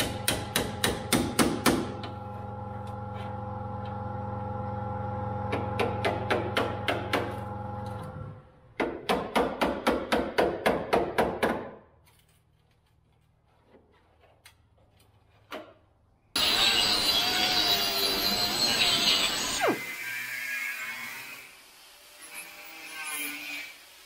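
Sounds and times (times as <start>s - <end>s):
hammer striking chisel on steel: 0.0s - 2.0s
angle grinder grinding steel: 16.4s - 23.8s.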